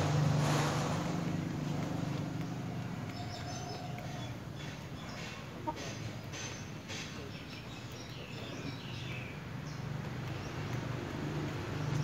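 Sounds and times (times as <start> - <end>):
chicken clucking: 3.1 - 6.6.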